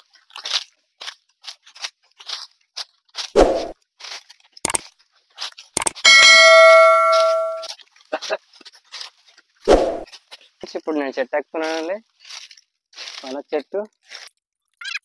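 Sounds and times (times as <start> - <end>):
footsteps crunching dry leaves: 0.0 - 5.8, 6.7 - 14.4
sharp clicks: 5.8 - 6.3
bright ringing chime: 5.9 - 7.7.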